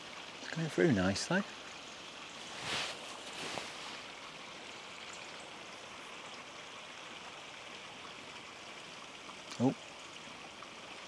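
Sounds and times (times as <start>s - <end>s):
steady river hiss: 0.0s - 11.0s.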